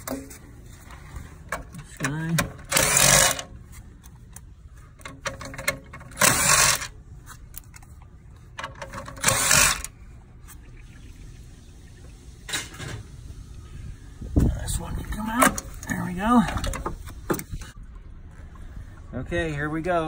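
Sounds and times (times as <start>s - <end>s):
hands scraping and rustling wiring: 0.0s - 9.4s.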